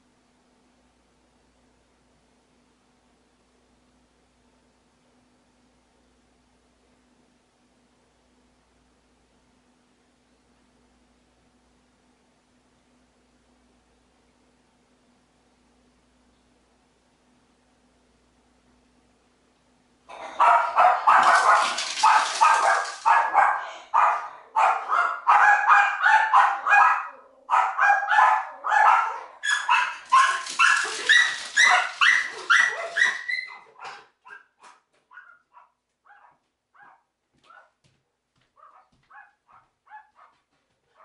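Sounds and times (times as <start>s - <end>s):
dog barking: 20.1s - 37.8s, 38.6s - 41.0s.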